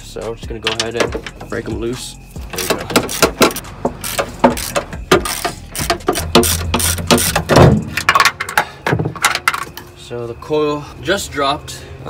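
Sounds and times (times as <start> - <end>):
socket ratchet clicking: 2.6 - 7.5.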